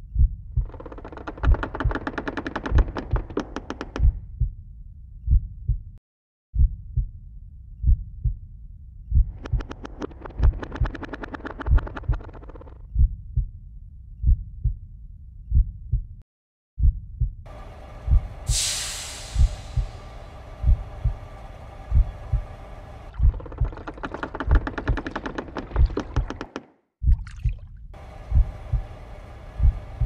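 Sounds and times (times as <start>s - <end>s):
heartbeat double thumps: 0.0s - 4.6s, 5.2s - 6.0s, 6.6s - 7.2s, 7.8s - 8.5s, 9.1s - 13.6s, 14.2s - 16.2s, 16.8s - 17.4s, 18.1s - 18.7s, 19.3s - 27.6s, 28.2s - 29.0s, 29.6s - 30.0s
fast-pulsing rattle: 0.6s - 3.8s, 9.3s - 12.8s, 19.4s - 26.0s
hiss: 18.2s - 20.9s.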